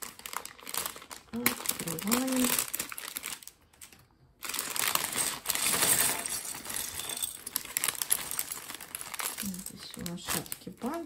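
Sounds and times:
plastic bag crinkling: 0.0s - 11.0s
plastic bricks clattering on a table: 5.2s - 8.7s.

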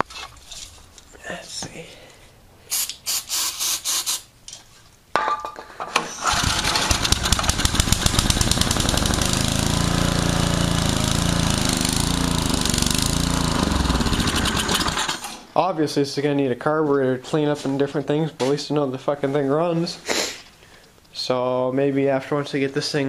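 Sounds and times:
small engine starting and running: 6.2s - 15.4s.

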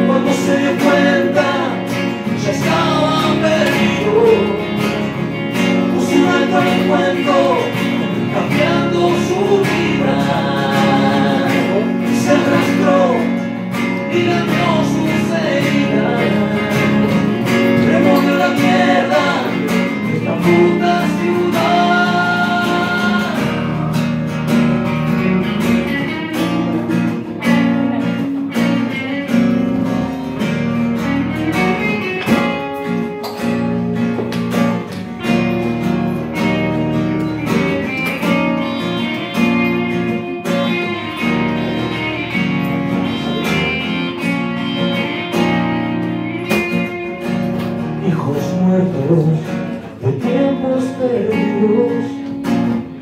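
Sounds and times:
man singing: 0.0s - 24.3s, 47.8s - 53.0s
acoustic guitar: 0.0s - 53.0s
electric guitar: 0.0s - 53.0s.

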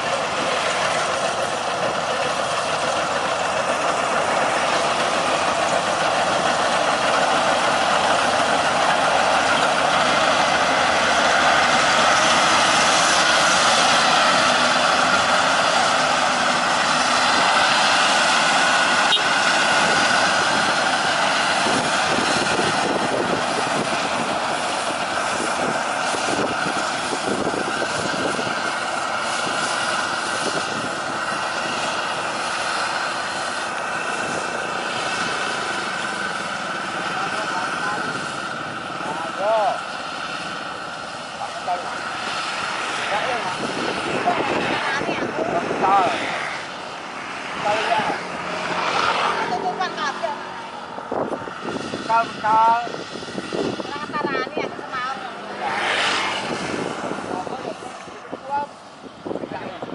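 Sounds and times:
combine harvester droning: 0.0s - 59.9s.

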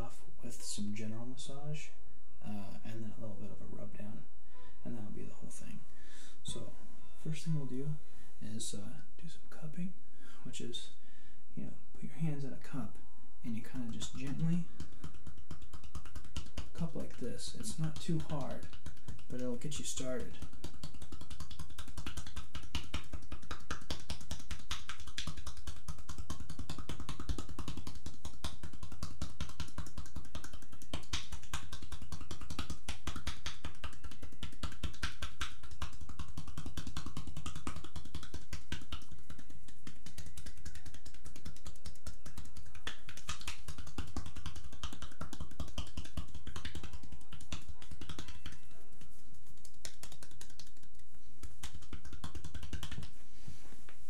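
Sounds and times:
cupped hands tapping on bare back: 13.5s - 54.0s.

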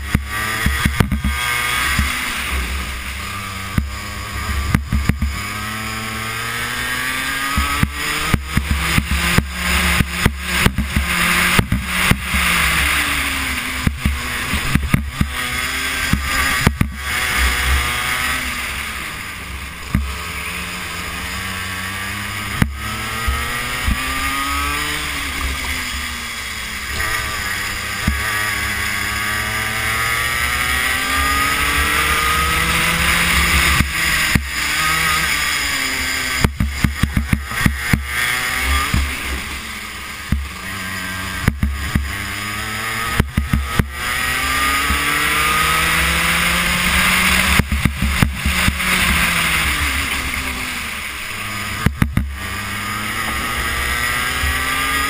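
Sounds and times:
sharp knocks and crackles: 0.0s - 2.3s, 3.7s - 5.7s, 7.4s - 12.6s, 13.8s - 17.2s, 19.8s - 20.3s, 22.5s - 24.7s, 28.0s - 28.6s, 32.4s - 35.4s, 36.3s - 39.4s, 40.2s - 40.6s, 41.4s - 45.3s, 46.3s - 50.6s, 51.8s - 53.5s
kart engine revving: 0.0s - 55.0s.

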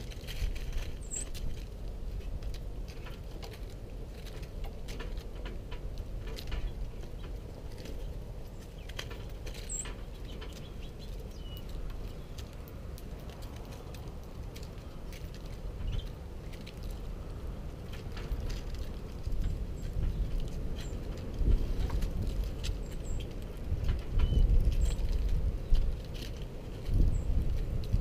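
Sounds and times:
birds pecking on wood: 0.0s - 28.0s
bird chirps: 9.6s - 12.4s, 24.2s - 25.0s.

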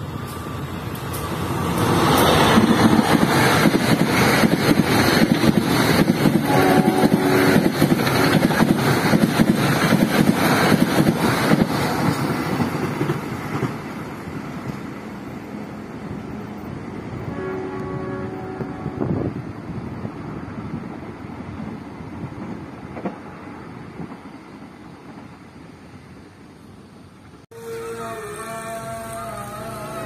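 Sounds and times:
passenger train passing: 0.0s - 30.0s
wheels clattering on rails: 0.3s - 15.0s, 20.7s - 25.4s.

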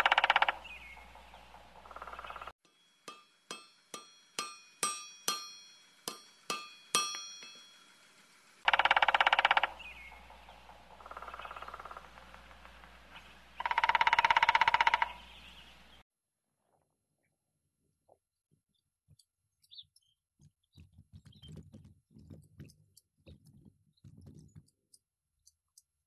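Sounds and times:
fast buzzing rattle: 0.0s - 15.4s
hammer striking anvil: 2.6s - 8.0s.

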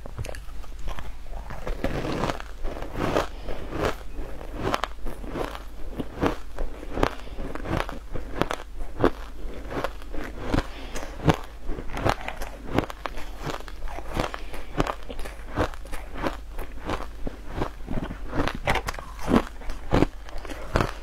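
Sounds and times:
ice being chewed and crunched: 0.2s - 21.0s.

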